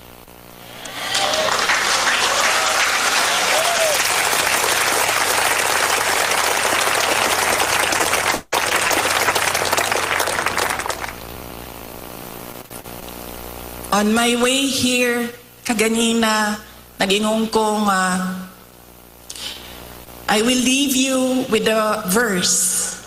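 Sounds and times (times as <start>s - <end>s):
large audience applauding: 0.7s - 11.2s.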